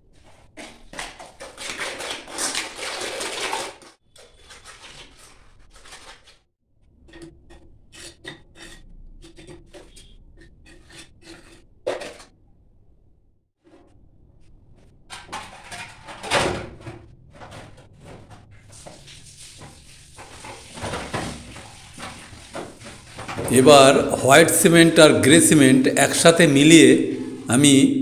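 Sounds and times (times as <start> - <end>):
trowel scraping mortar: 7.0 - 12.2.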